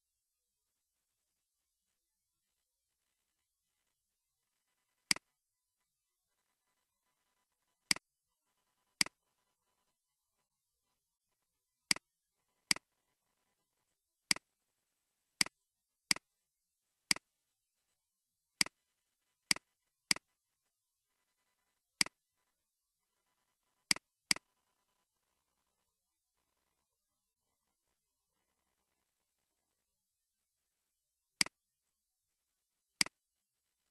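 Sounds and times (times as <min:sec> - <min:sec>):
computer mouse clicks: 0:05.1 - 0:05.3, 0:12.7 - 0:12.9, 0:14.3 - 0:14.5, 0:15.4 - 0:16.3, 0:17.1 - 0:17.3, 0:19.5 - 0:20.3, 0:23.9 - 0:24.6.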